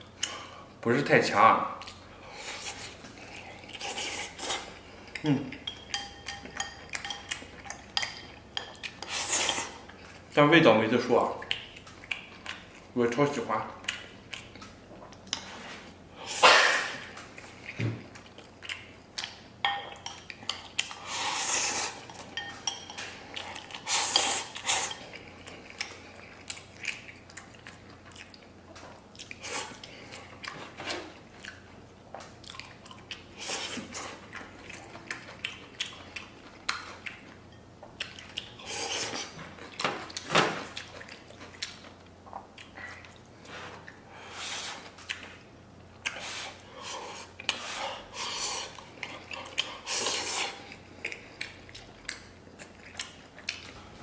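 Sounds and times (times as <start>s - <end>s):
wet chewing: 11.4s - 13.0s, 13.7s - 15.5s, 16.9s - 44.1s, 44.8s - 54.0s.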